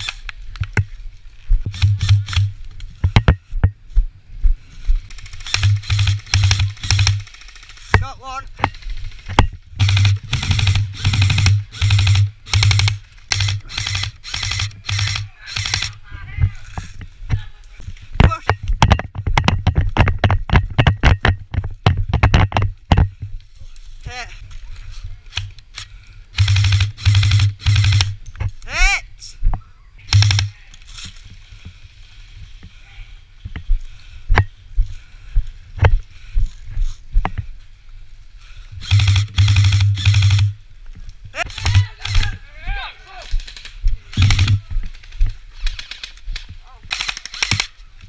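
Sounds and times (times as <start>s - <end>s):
airsoft rifle full-auto bursts: 1.7s - 2.6s, 5.1s - 8.0s, 8.6s - 16.0s, 25.3s - 28.2s, 30.1s - 30.6s, 38.8s - 40.6s, 41.4s - 42.4s, 43.4s - 44.6s, 46.9s - 47.8s
running footsteps on leaves: 30.7s - 39.2s, 40.6s - 47.0s.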